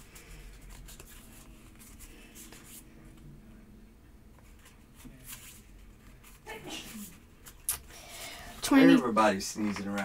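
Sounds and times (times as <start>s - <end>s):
cards rustling and sliding: 0.0s - 2.9s.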